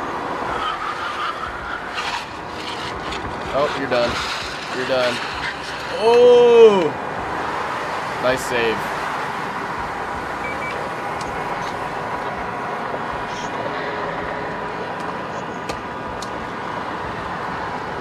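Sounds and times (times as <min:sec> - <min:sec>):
cars driving past: 0:00.0 - 0:18.0
freeway traffic rushing: 0:00.0 - 0:18.0.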